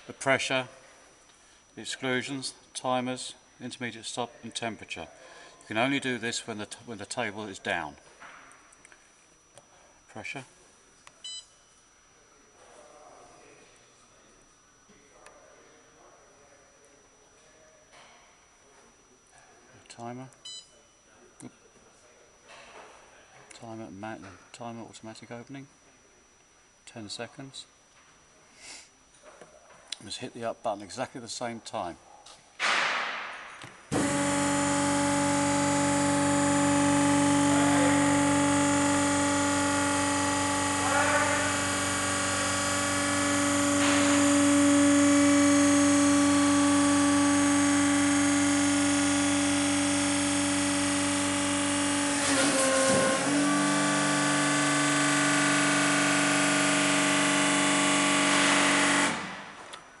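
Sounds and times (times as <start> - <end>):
hydraulic pump motor running: 33.9 - 59.9.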